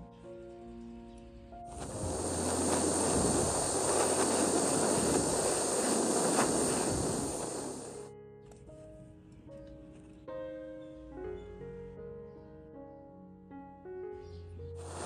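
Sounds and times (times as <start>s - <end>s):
torch flame hissing: 1.7s - 8.1s, 14.8s - 15.0s.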